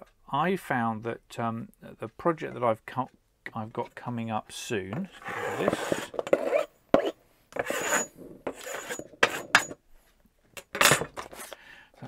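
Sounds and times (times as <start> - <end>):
metal blade scraping sand: 5.2 - 6.7, 7.6 - 9.8.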